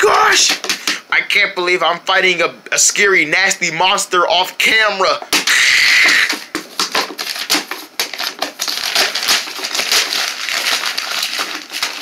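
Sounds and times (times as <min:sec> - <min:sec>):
crunching crackling rustle: 0:06.1 - 0:12.0.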